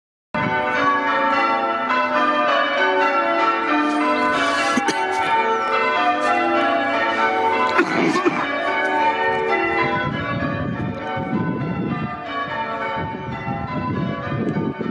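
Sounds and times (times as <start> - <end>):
church bells pealing: 0.4 - 14.9.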